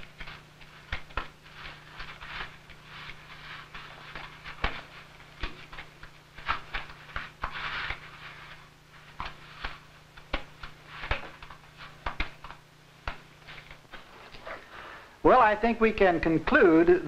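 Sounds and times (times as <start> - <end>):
steady low hum: 0.0 - 17.0
scratchy scrapes: 0.1 - 5.8, 6.4 - 9.9.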